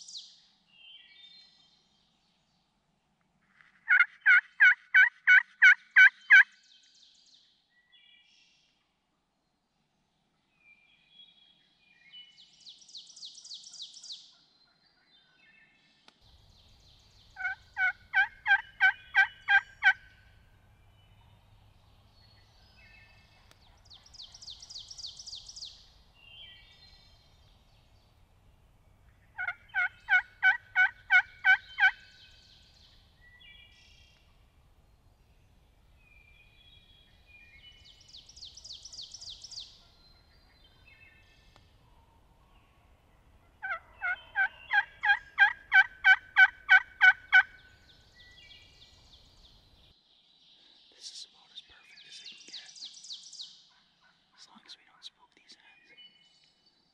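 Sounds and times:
turkey yelping: 3.9 - 6.4, 17.4 - 20.2, 29.4 - 32.0, 43.4 - 47.6.

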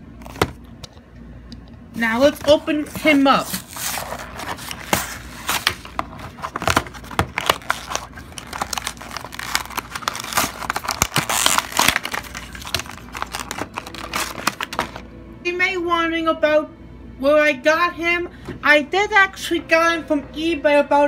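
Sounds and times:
plastic packaging crinkling and tearing: 2.8 - 15.1.

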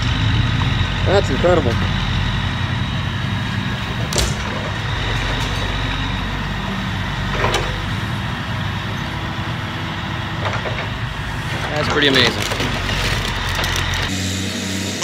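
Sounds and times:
truck engine running: 0.0 - 15.0.

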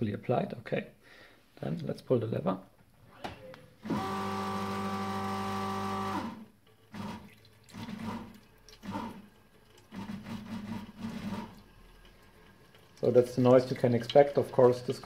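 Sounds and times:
espresso machine pump humming: 3.8 - 11.7.

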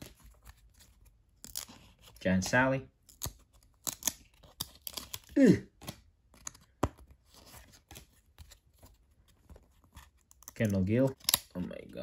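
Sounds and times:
card clicks and scrapes: 3.1 - 11.5.

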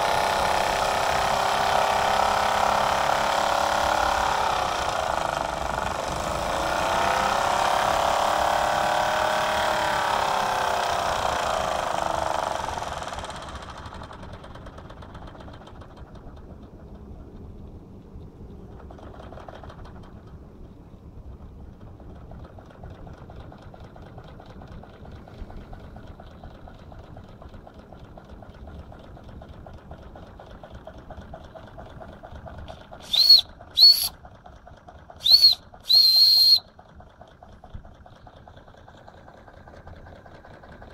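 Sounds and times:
toy steam engine chuffing: 26.9 - 40.9
shrill steam whistle toots: 33.0 - 34.1, 35.2 - 36.6.

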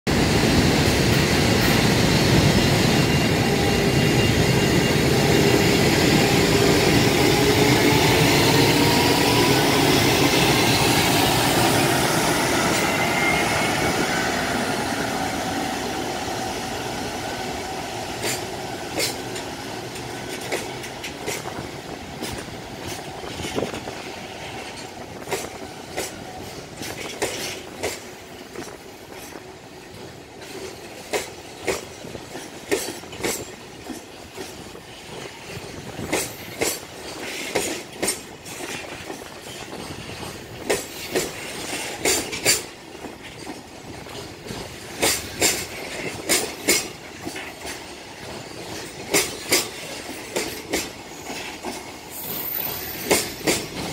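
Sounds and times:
electric locomotive motor whine: 0.2 - 20.5
wheels clacking over rail joints: 18.1 - 53.9.

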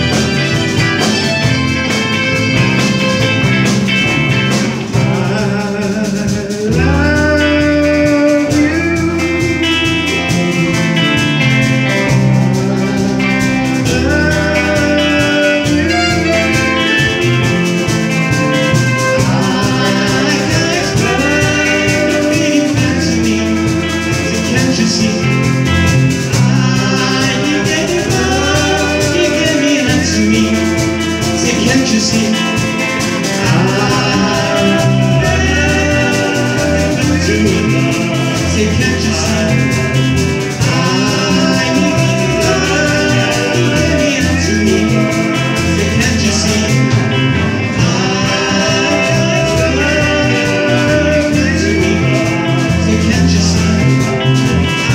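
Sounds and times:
drum kit: 0.0 - 54.9
electric guitars: 0.0 - 54.9
person singing: 0.0 - 54.9.

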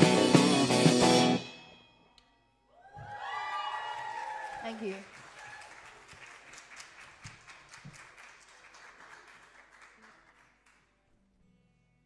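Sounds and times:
small audience applauding: 2.8 - 11.1.

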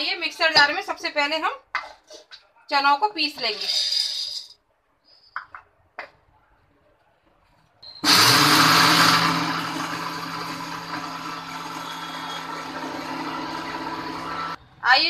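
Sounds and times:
mixer grinder running: 8.0 - 14.6.

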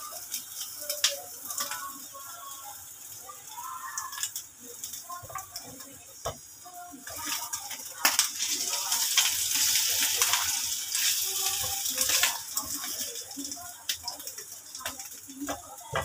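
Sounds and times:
omelette sizzling in oil: 0.0 - 16.0
spatula clicking against pan: 7.1 - 16.0.

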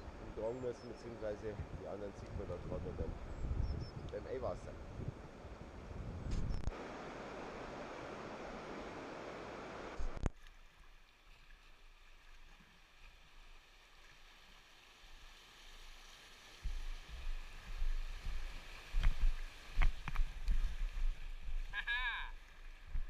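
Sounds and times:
river water rushing and splashing: 6.7 - 23.0.

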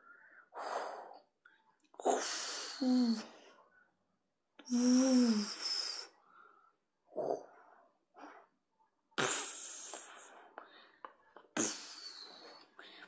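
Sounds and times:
mouth hissing bursts: 9.2 - 10.1.

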